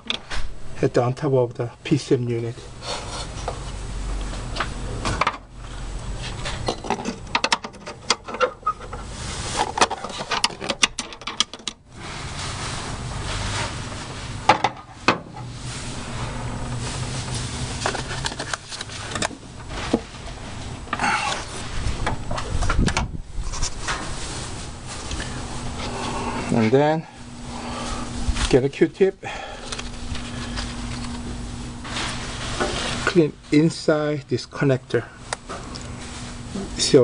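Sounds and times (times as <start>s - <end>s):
hands clicking and tapping on parts: 9.8s - 11.8s.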